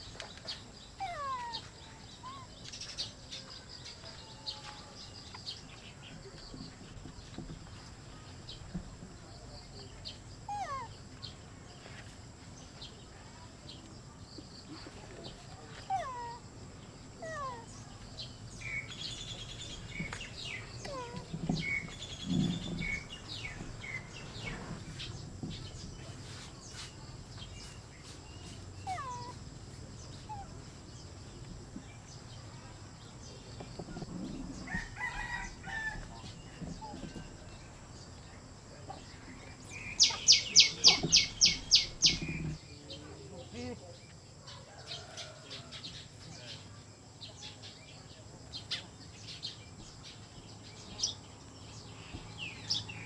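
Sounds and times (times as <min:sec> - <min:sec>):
high animal chirps: 0:28.8 - 0:29.4, 0:39.9 - 0:42.6.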